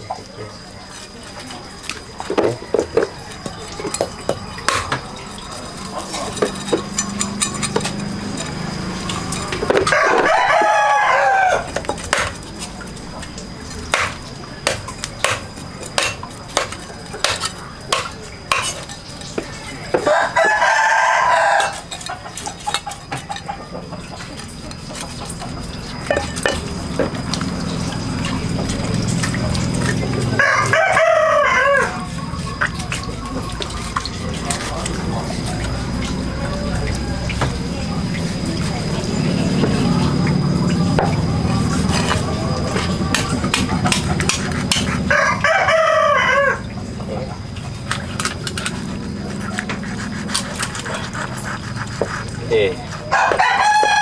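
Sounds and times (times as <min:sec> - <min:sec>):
rooster crowing: 0:08.1 - 0:11.8, 0:20.0 - 0:22.2, 0:30.3 - 0:32.2, 0:45.1 - 0:46.8, 0:53.0 - 0:54.0.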